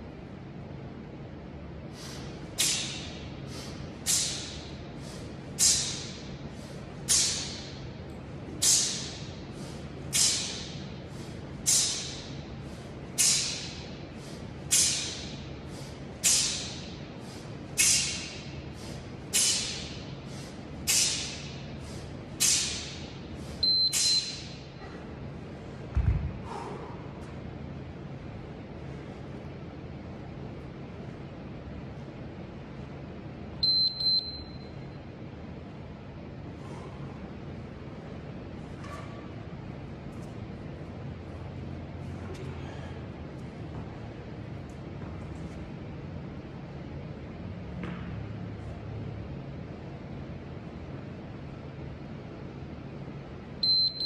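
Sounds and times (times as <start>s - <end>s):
man exhaling sharply: 1.9s - 7.6s, 8.6s - 23.6s, 26.4s - 27.2s, 42.5s - 43.1s
interval timer beep: 23.6s - 24.5s, 53.6s - 54.0s
kettlebell thud on rubber floor: 25.9s - 26.4s.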